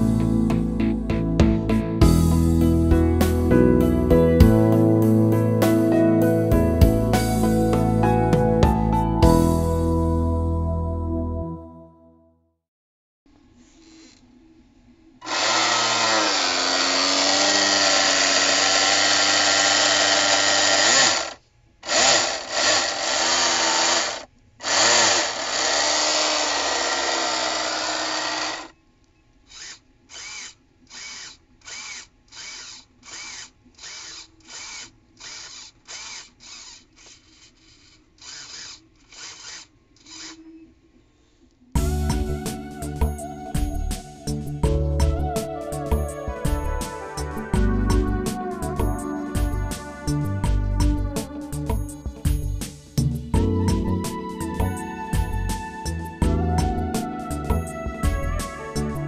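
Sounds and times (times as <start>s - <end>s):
small electric motor whine: 13.6s - 14.3s, 15.2s - 28.8s, 29.5s - 40.8s.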